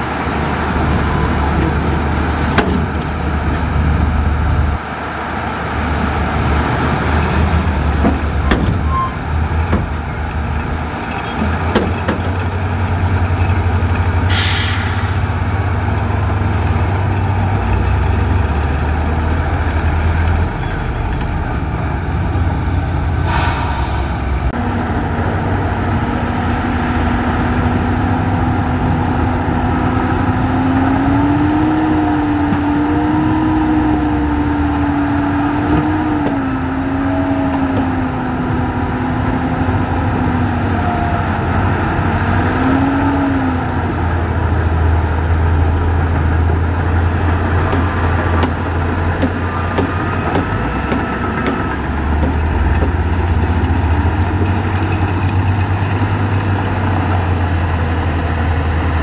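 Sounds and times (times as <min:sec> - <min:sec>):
diesel truck engine under load: 0:00.0 - 0:59.0.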